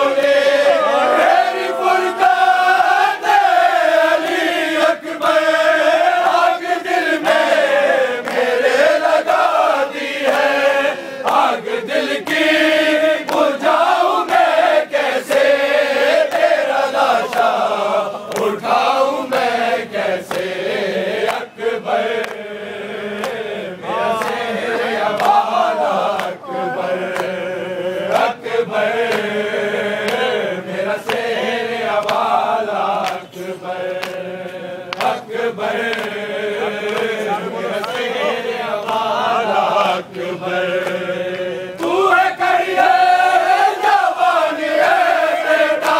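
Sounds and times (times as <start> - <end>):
men chanting together: 0.0 - 45.9
rhythmic chest-beating thuds: 1.2 - 45.9.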